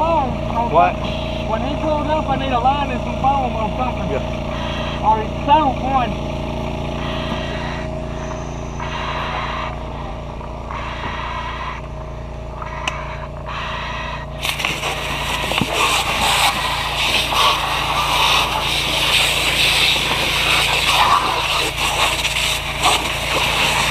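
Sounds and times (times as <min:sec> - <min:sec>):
engine drone: 0:00.0 - 0:23.9
fire hose stream hissing: 0:14.4 - 0:23.9.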